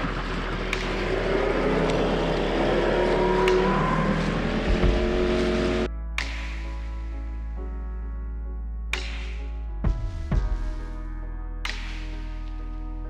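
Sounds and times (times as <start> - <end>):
small outboard motor running: 0.0 - 3.2.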